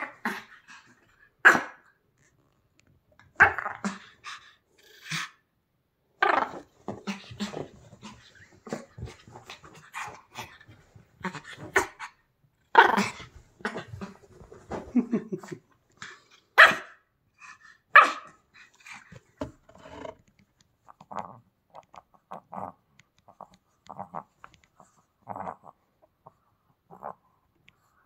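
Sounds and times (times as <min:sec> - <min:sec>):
dog barking: 0:16.6 - 0:17.0, 0:17.9 - 0:18.4
dog growling: 0:22.0 - 0:25.8, 0:26.9 - 0:27.2.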